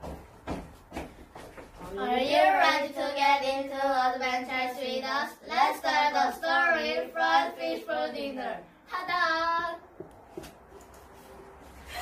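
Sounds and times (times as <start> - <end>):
children singing together: 2.0 - 9.5.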